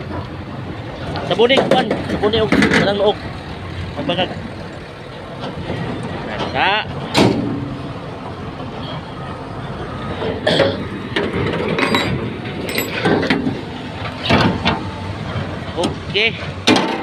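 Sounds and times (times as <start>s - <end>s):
steady background noise: 0.0s - 17.0s
metal knocks and clanks: 1.4s - 3.0s, 10.2s - 17.0s.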